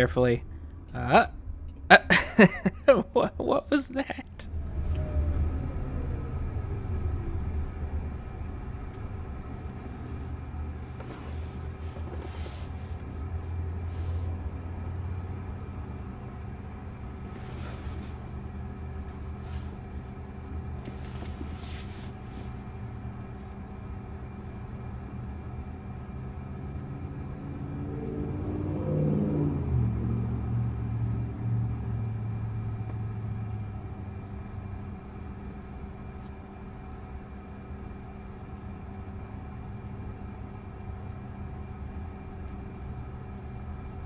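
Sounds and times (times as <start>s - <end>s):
car cabin low rumble: 0.0s - 28.0s
traffic passing outside: 4.2s - 40.9s.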